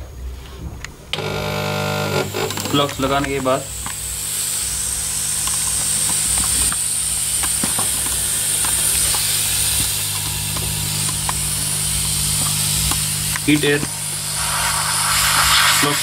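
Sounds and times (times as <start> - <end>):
hot air station hissing: 0.3 - 16.0.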